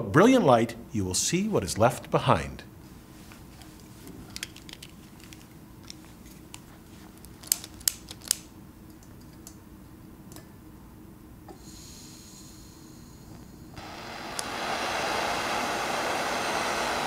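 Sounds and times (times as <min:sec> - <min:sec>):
faint hiss of gas: 0:11.5 - 0:17.0
lighter trigger clicks: 0:14.3 - 0:14.5.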